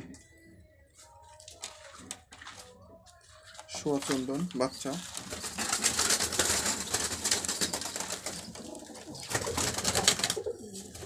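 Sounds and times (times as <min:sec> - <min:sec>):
pigeon wings flapping: 0:04.0 - 0:11.0.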